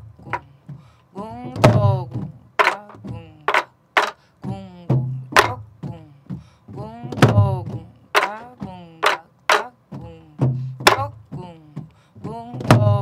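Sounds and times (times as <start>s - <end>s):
palm thumping drumhead: 0.0s - 13.0s
woman chanting: 0.2s - 3.7s, 4.4s - 13.0s
stick cracking on drum shell: 2.6s - 4.2s, 8.2s - 9.7s.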